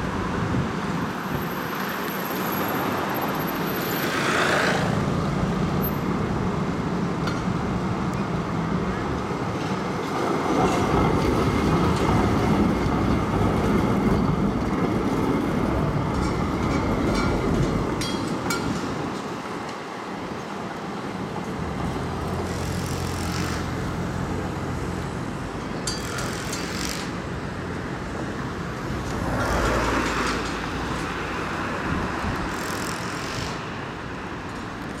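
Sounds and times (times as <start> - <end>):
passing vehicle rush: 0.0 - 5.9
buses and cars traffic noise: 0.0 - 35.0
tram rolling: 0.0 - 35.0.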